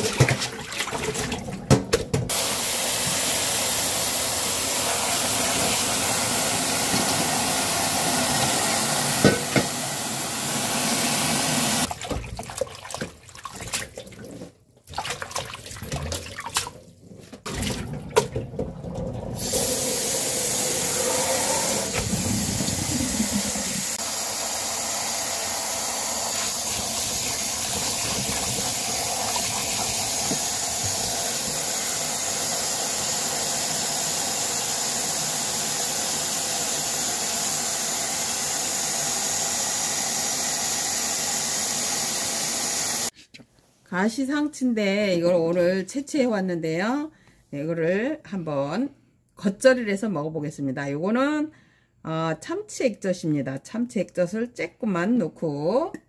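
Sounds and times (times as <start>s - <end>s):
hands rinsing lettuce leaves: 0.0s - 2.5s, 11.8s - 20.2s, 26.3s - 32.2s
tap water pouring into bowl: 26.3s - 31.8s.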